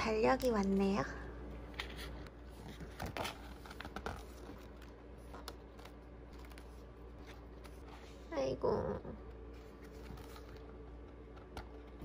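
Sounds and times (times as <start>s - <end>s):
calendar pages flipping: 1.6s - 8.2s, 9.5s - 12.0s.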